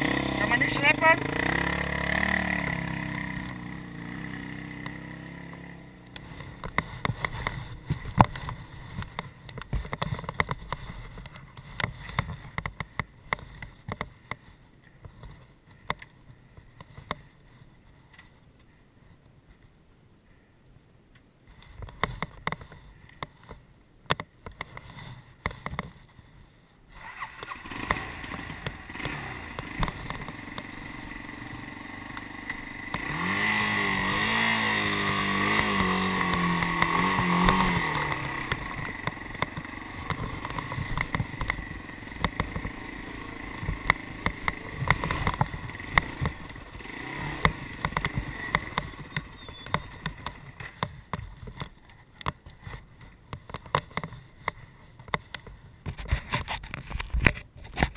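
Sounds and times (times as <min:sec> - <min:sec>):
motorcycle engine revving: 0:00.0 - 0:13.6, 0:26.9 - 0:52.8.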